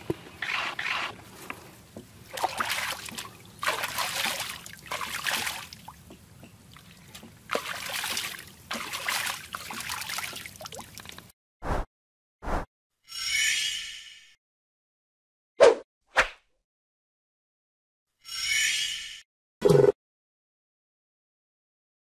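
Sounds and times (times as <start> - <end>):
eels splashing in a bucket: 2.2 - 11.3.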